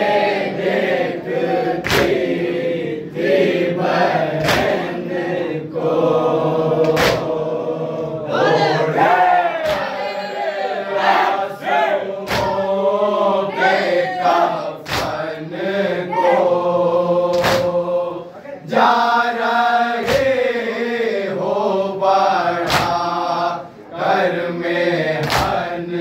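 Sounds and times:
men chanting together: 0:00.0 - 0:26.0
hands slapping chests: 0:01.8 - 0:02.3, 0:04.4 - 0:04.9, 0:06.8 - 0:07.3, 0:09.6 - 0:10.0, 0:12.3 - 0:12.6, 0:14.8 - 0:15.3, 0:17.3 - 0:17.8, 0:20.0 - 0:20.4, 0:22.6 - 0:23.0, 0:25.2 - 0:25.6.

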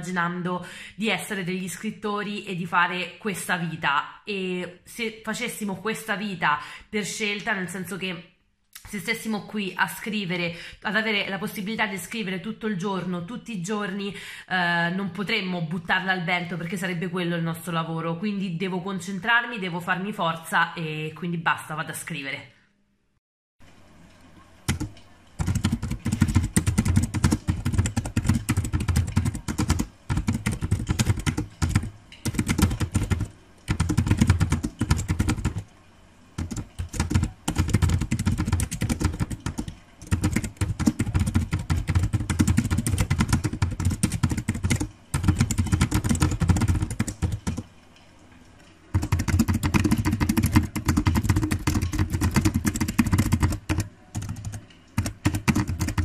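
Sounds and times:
fast keyboard typing: 0:24.7 - 0:35.7, 0:36.4 - 0:47.6, 0:48.9 - 0:56.0.

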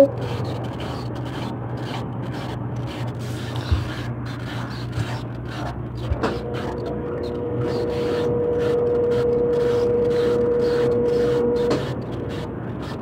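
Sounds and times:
washing machine spinning: 0:05.4 - 0:13.0.

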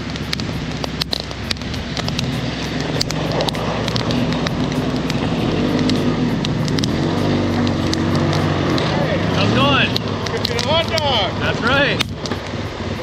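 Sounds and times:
campfire crackling and popping: 0:00.0 - 0:13.0
quad engine running: 0:00.0 - 0:13.0.

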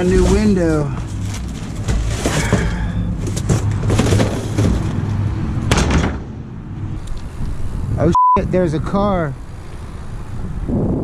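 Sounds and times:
debris knocking and crunching: 0:00.0 - 0:06.4.

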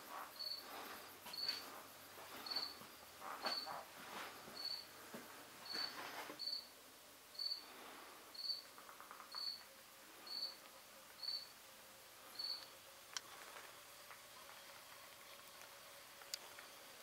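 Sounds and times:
cricket chirping: 0:00.1 - 0:03.8, 0:04.6 - 0:04.9, 0:05.6 - 0:06.7, 0:07.3 - 0:07.7, 0:08.3 - 0:10.6, 0:11.2 - 0:11.6, 0:12.3 - 0:12.7.

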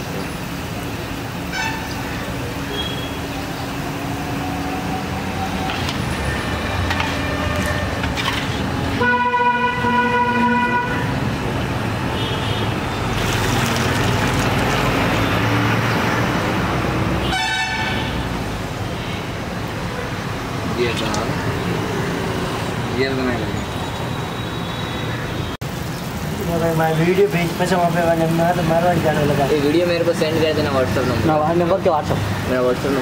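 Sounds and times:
street traffic noise: 0:00.0 - 0:33.0
vehicle horn honking: 0:01.5 - 0:01.9, 0:09.0 - 0:11.1, 0:17.2 - 0:18.2.

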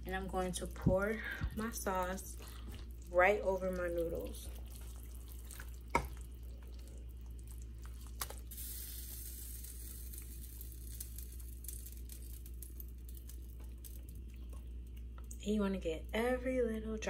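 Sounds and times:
low steady hum: 0:00.0 - 0:17.0
sauce sizzling hiss: 0:08.1 - 0:12.5.

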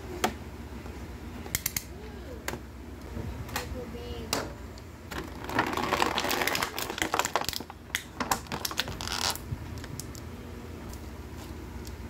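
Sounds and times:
plastic packaging crackling: 0:05.1 - 0:10.2.

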